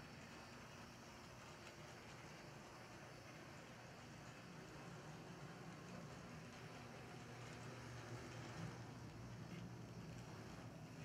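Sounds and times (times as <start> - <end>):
model locomotive motor hum: 0.0 - 11.0.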